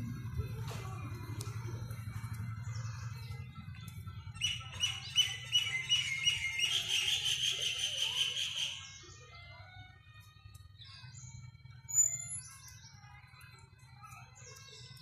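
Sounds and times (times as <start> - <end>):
bird chirping: 2.2 - 8.8.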